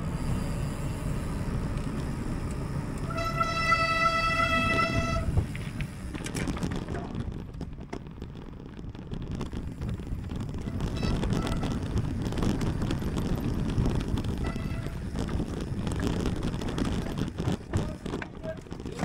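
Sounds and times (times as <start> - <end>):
wind and tyres rumbling: 0.0 - 19.0
horn sounding: 3.0 - 5.4, 10.6 - 11.9, 14.4 - 15.0.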